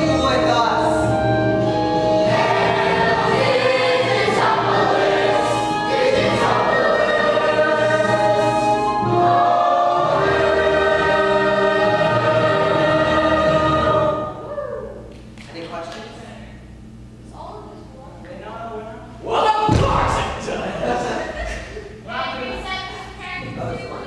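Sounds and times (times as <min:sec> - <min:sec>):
chorus singing: 0:00.0 - 0:14.5.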